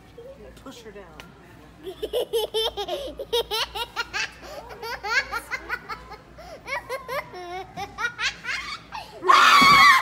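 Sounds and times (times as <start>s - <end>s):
people giggling: 1.8s - 8.9s.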